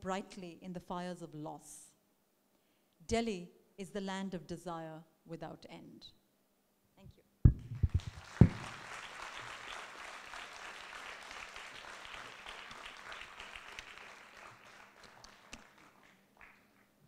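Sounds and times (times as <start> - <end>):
audience applauding: 7.8 - 16.9.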